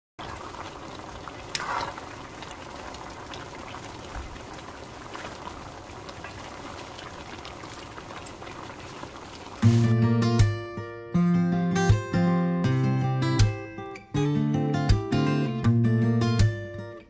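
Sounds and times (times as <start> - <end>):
stew bubbling in a pan: 0.2 - 9.9.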